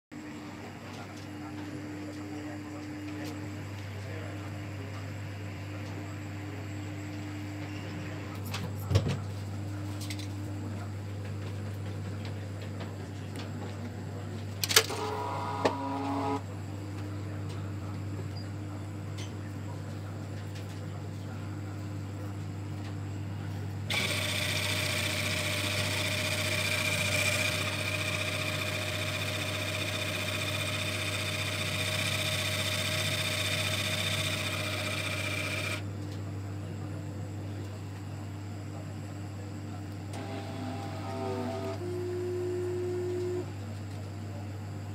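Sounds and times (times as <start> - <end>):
pump whining: 14.6 - 16.4, 23.9 - 35.8.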